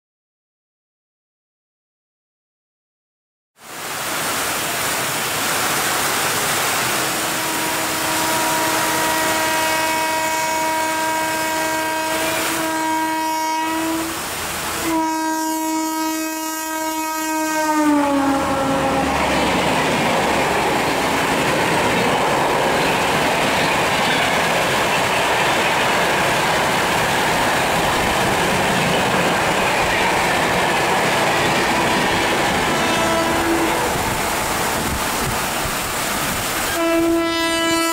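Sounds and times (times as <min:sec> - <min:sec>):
heavy rain hiss: 0:03.6 - 0:37.9
locomotive horn blasts: 0:07.0 - 0:19.3, 0:31.6 - 0:34.5, 0:36.6 - 0:37.9
train coaches rushing past: 0:17.5 - 0:37.2.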